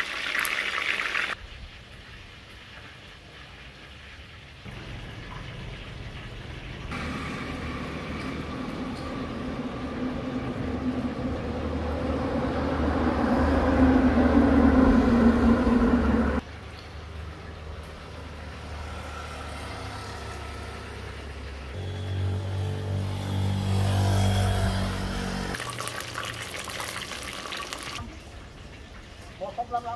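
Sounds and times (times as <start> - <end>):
vehicle engine and tyre noise: 4.4 - 25.7.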